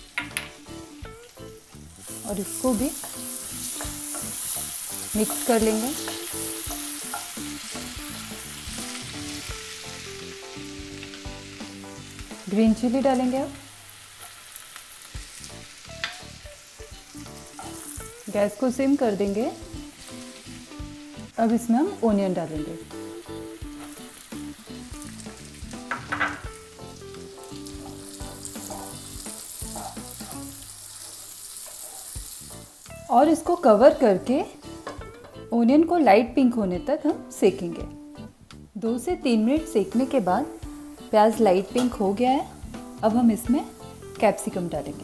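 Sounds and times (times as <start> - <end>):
butter and oil sizzling: 0.0 - 45.0
soft background music: 0.0 - 45.0
wooden spatula knocking on pan: 25.8 - 26.6.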